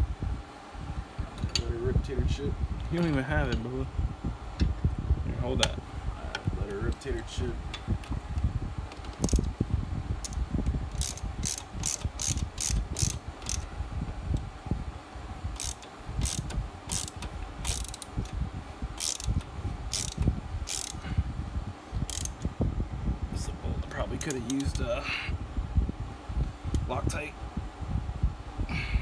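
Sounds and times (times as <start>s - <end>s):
socket ratchet clicking: 8.9s - 9.5s, 10.2s - 13.7s, 15.6s - 18.4s, 19.0s - 21.0s, 22.0s - 22.5s.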